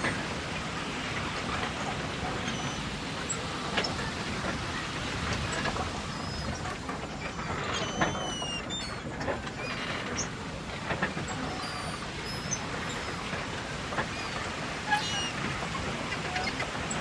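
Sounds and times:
low rumble and wash: 0:00.0 - 0:17.0.

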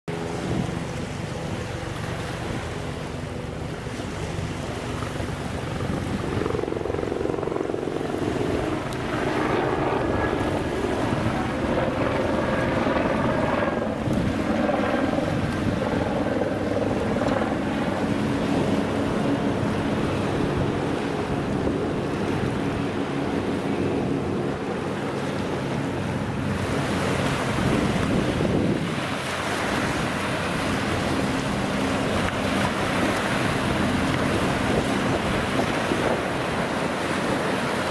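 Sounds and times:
low hum of ship engine: 0:00.1 - 0:37.9
wind buffeting microphone: 0:00.1 - 0:37.9
small waves washing on sand: 0:17.0 - 0:37.9.

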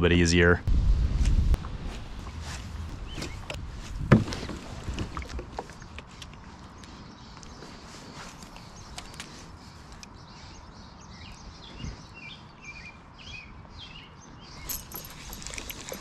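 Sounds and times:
low steady rumble: 0:00.0 - 0:05.6.

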